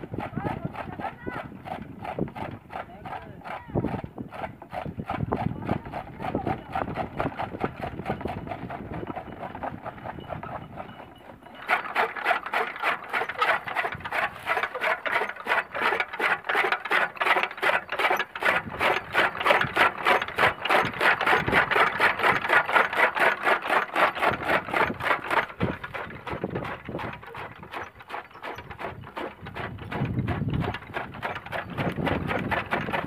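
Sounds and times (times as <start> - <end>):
chaff cutter clattering: 11.5 - 33.0.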